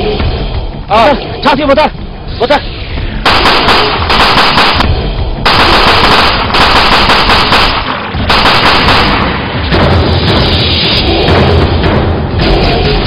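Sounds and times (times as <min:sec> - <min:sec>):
automatic rifle fire: 0:03.2 - 0:09.5.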